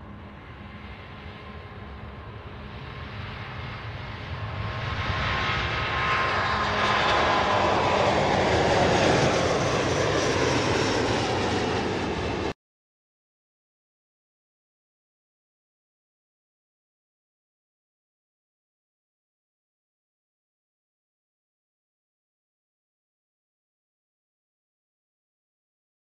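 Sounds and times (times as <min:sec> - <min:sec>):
jet airliner taking off: 0:00.0 - 0:12.6.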